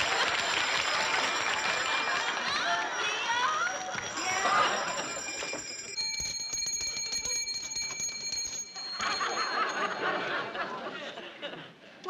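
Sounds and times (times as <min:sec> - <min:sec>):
studio audience laughter: 0:00.0 - 0:05.6, 0:09.0 - 0:12.0
bell ringing rapidly: 0:00.0 - 0:11.0.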